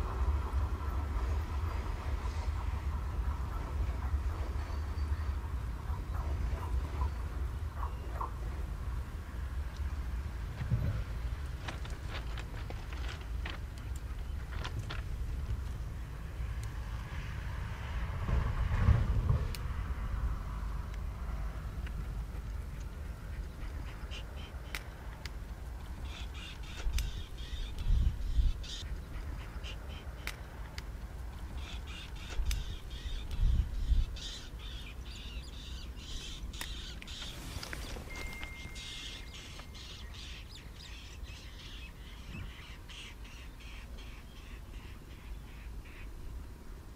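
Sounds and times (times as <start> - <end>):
freight train wheels rumbling: 0.0 - 7.4, 17.8 - 23.9
birds calling: 0.8 - 10.1, 21.8 - 46.4
sharp clicks: 24.6 - 26.0, 26.6 - 28.0, 30.1 - 33.5.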